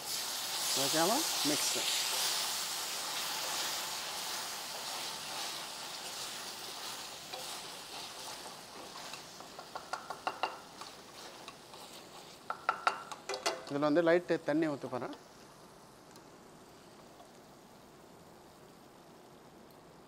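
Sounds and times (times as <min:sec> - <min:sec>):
sauce sizzling in a frying pan: 0:00.0 - 0:20.0
spatula tapping and scraping a pan: 0:06.7 - 0:13.8.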